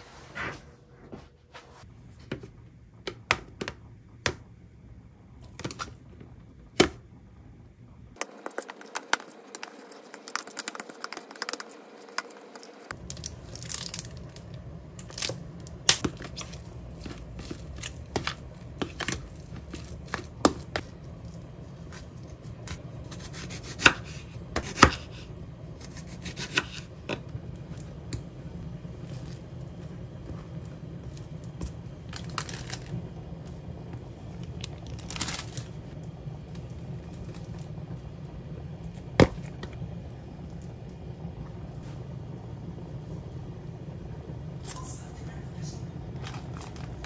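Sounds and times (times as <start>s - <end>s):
low steady hum: 0.0s - 47.0s
handling bread on plastic sheet: 13.0s - 22.8s, 32.0s - 33.0s, 34.4s - 36.0s.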